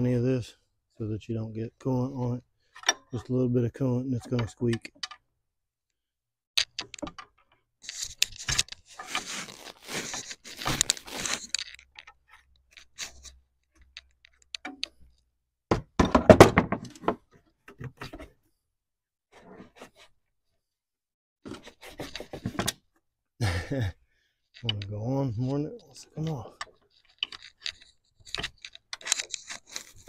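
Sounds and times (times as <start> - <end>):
rubbing and scraping on hose: 7.8 - 15.2, 21.5 - 22.6, 24.6 - 30.0
clattering knocks: 15.7 - 17.2.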